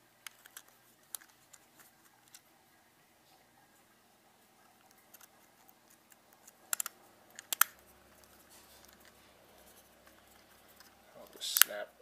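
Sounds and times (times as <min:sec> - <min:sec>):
faint handling noise: 0:00.0 - 0:02.6, 0:03.2 - 0:11.8
small plastic lens parts clicking: 0:00.2 - 0:02.4, 0:04.8 - 0:09.2.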